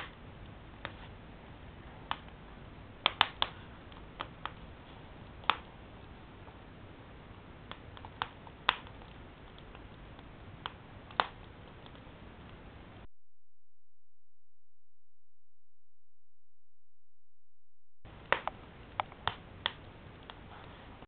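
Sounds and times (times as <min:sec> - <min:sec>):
low steady hiss: 0:00.0 - 0:13.1, 0:18.1 - 0:21.0
wood fire crackling and popping: 0:01.8 - 0:12.7, 0:18.1 - 0:20.4.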